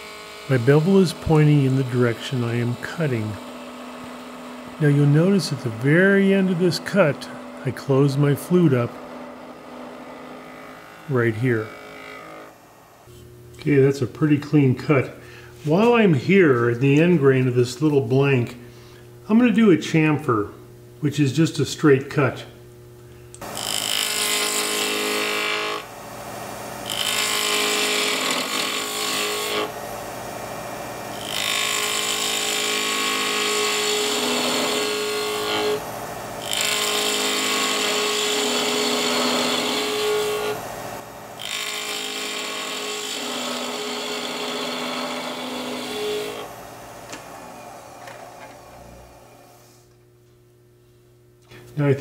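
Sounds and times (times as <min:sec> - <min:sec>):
lathe humming: 0:00.0 - 0:13.9, 0:23.4 - 0:49.8
gouge shaving wood: 0:23.7 - 0:25.8, 0:26.9 - 0:29.8, 0:31.2 - 0:40.7, 0:41.4 - 0:48.3.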